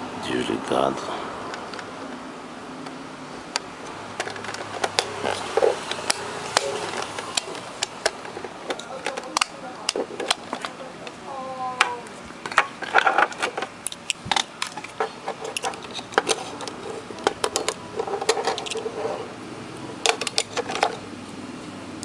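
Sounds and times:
plastic clicks and rattles: 4.2 - 11.2, 11.8 - 19.2, 20.0 - 21.0.

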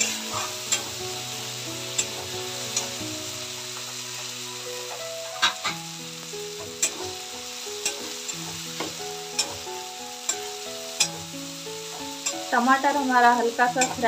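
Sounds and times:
spatula scraping pan: 0.0 - 1.2, 3.6 - 5.8, 7.7 - 14.0
vegetables sizzling in oil: 0.0 - 14.0
spatula clinking against pan: 6.8 - 7.0, 13.7 - 14.0.

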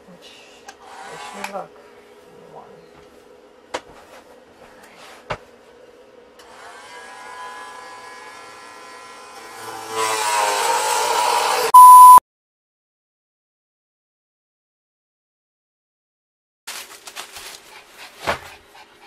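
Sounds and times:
oscillating multi-tool whining: 0.8 - 1.6, 6.4 - 11.7
test-pattern beep: 11.8 - 12.2.

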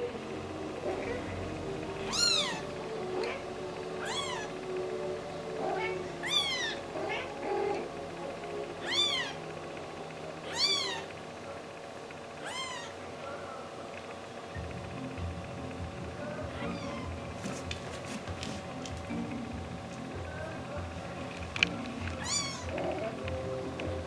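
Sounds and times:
kitten meowing: 2.1 - 2.6, 4.0 - 4.5, 5.8 - 7.2, 8.8 - 9.4, 10.5 - 11.1, 12.4 - 13.0, 16.6 - 17.1, 22.2 - 22.7.

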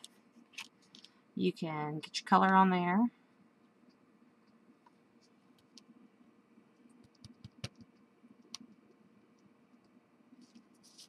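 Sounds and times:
craft tools tapping and clicking: 7.0 - 7.9.

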